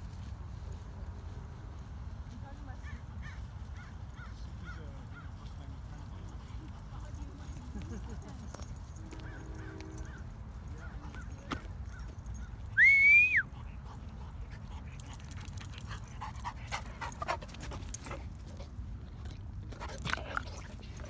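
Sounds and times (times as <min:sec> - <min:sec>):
dog panting: 0:13.4 - 0:21.0.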